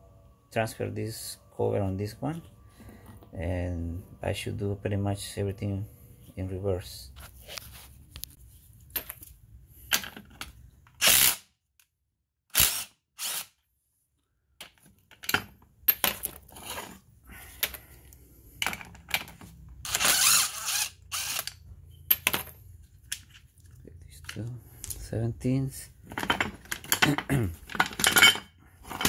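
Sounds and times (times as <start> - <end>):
plastic and metal parts clattering: 18.5 - 19.8, 26.0 - 29.0.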